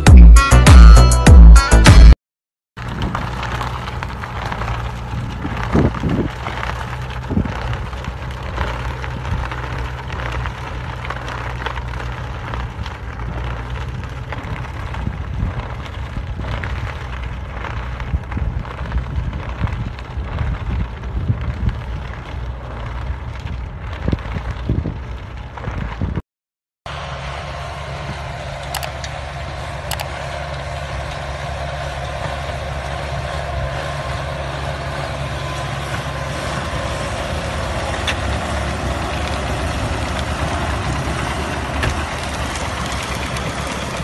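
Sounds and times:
tractor engine running: 0:00.0 - 0:02.2, 0:02.8 - 0:26.2, 0:26.9 - 0:44.0
wind noise on microphone: 0:04.6 - 0:08.0, 0:12.5 - 0:26.2.

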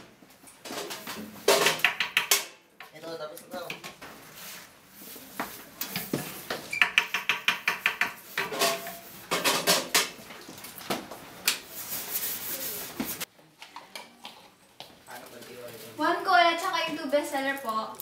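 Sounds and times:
dishes clattering in a steel sink: 0:06.8 - 0:10.2.

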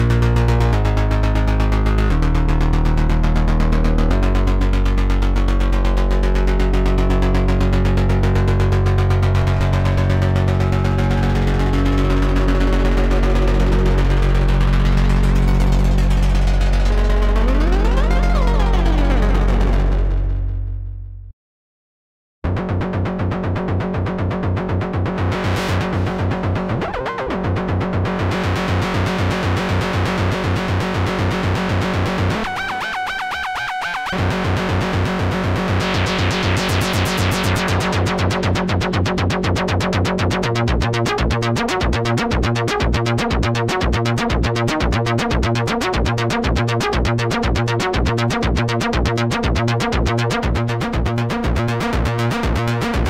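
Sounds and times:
pulsing synth pattern: 0:00.0 - 0:20.4, 0:24.6 - 0:53.0.

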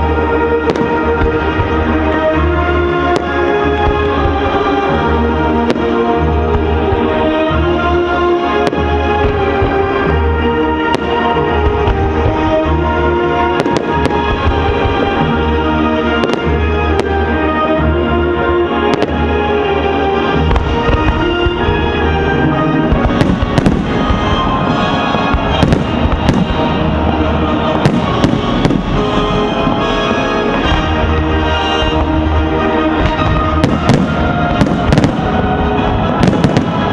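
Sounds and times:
fireworks bursting: 0:00.0 - 0:17.8, 0:18.7 - 0:36.9
music soundtrack: 0:00.0 - 0:36.9.

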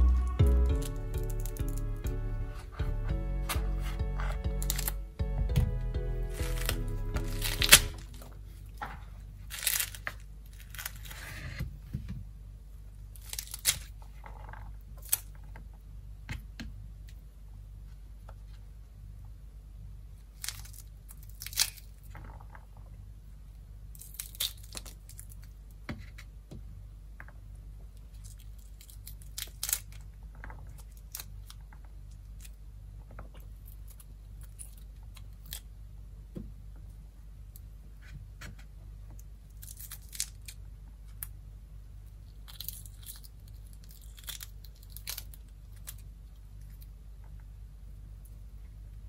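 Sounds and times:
low hum: 0:00.0 - 0:08.8
fruit peel crackling and snapping: 0:00.6 - 0:02.1, 0:03.5 - 0:05.0, 0:06.2 - 0:11.3, 0:13.1 - 0:14.3, 0:14.9 - 0:15.6, 0:20.2 - 0:22.5, 0:23.8 - 0:25.6, 0:28.0 - 0:32.6, 0:33.2 - 0:35.8, 0:39.2 - 0:41.4, 0:42.0 - 0:47.0.

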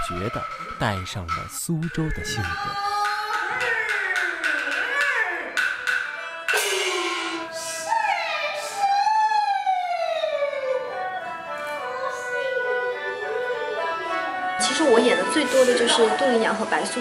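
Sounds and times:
clapper and drum strikes: 0:01.3 - 0:07.2
held high instrumental tone: 0:01.3 - 0:07.9.

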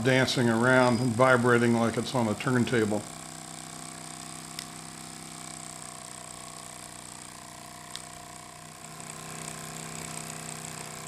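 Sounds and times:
steam engine running: 0:00.0 - 0:11.0.

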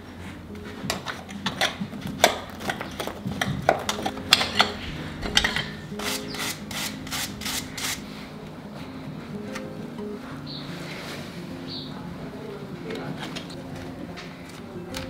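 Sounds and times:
faint background music: 0:00.0 - 0:15.0
hand tools scraping a hoof: 0:00.9 - 0:08.0.

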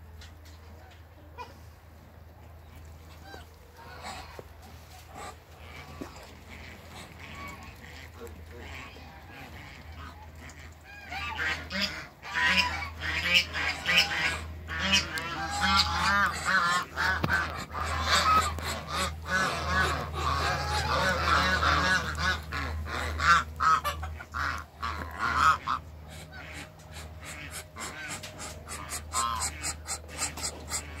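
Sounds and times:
geese honking: 0:03.0 - 0:31.0.

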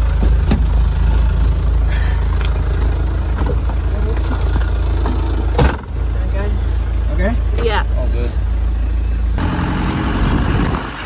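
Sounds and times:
truck engine idling: 0:00.0 - 0:11.0.

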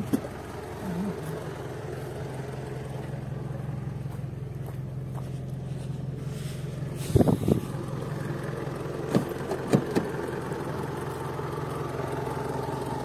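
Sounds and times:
vehicle engine idling: 0:00.0 - 0:13.0.

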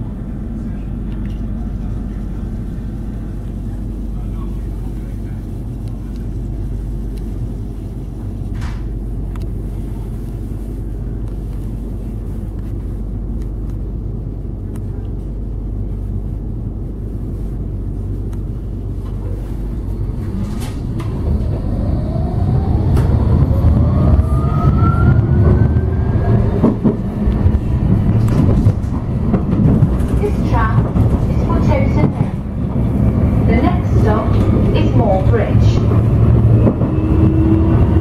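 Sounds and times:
tram interior hum: 0:00.0 - 0:38.0
tram running rumble: 0:00.0 - 0:38.0
rising motor whine: 0:20.8 - 0:27.7.

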